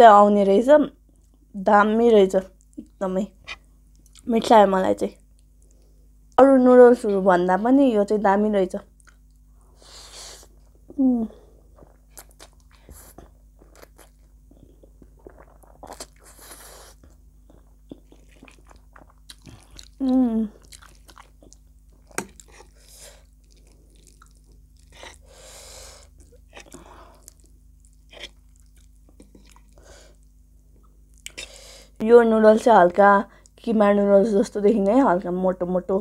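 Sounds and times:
chewing noodles: 0:11.8 - 0:25.3, 0:26.0 - 0:30.2
person humming: 0:20.0 - 0:20.6.

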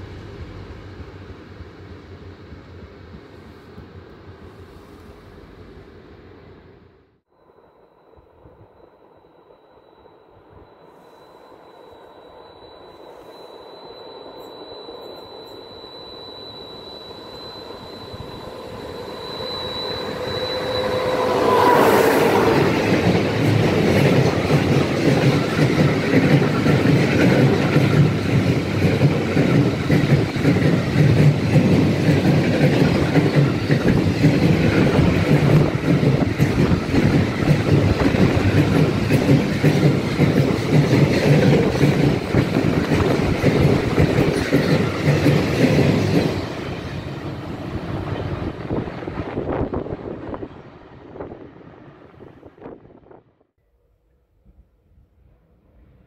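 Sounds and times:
train whine: 0:00.0 - 0:53.6
train wheels clattering on rails: 0:18.3 - 0:49.8.

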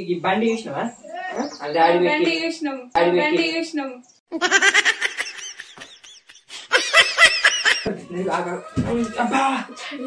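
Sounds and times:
high-pitched laughter: 0:04.3 - 0:08.0.

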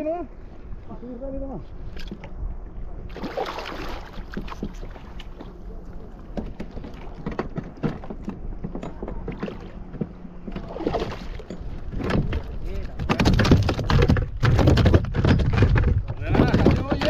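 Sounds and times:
wind rumble on microphone: 0:00.0 - 0:17.0
water slapping a kayak hull: 0:03.1 - 0:17.0
small knocks: 0:11.4 - 0:17.0.

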